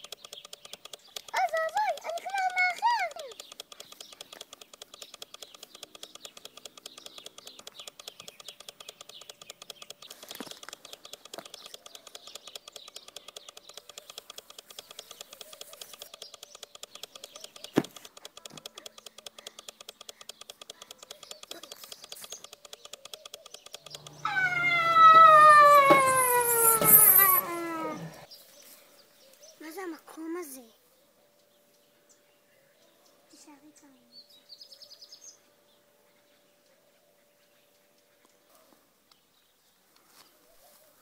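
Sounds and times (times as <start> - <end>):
fast even ticking: 0.0 - 28.3
sharp click: 0.0 - 28.3
long sliding tone falling in pitch: 24.0 - 28.3.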